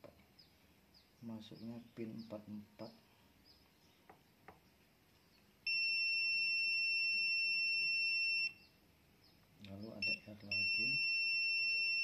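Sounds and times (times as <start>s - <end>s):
multimeter continuity beep: 5.6s - 8.7s, 9.9s - 12.0s.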